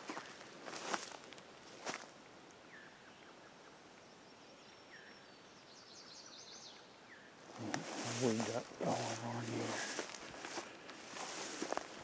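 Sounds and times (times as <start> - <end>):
rustle: 0.0 - 12.0
songbirds chirping: 0.0 - 12.0.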